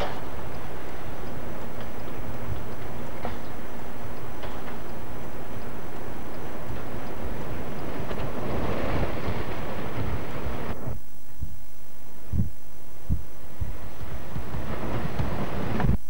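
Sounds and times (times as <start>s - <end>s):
wind buffeting microphone: 0.0s - 11.6s, 12.2s - 16.0s
gusts thumping mic: 7.8s - 16.0s.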